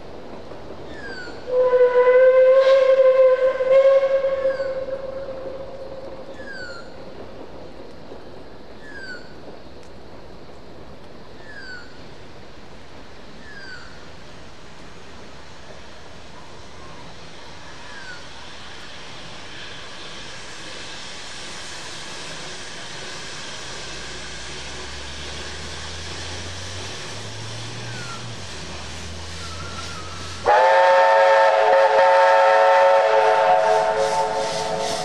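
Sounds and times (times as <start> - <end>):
rhythmic steam chuffs: 0.0 - 35.0
steady steam hiss: 0.0 - 35.0
chime steam whistle: 1.5 - 6.6, 29.3 - 35.0.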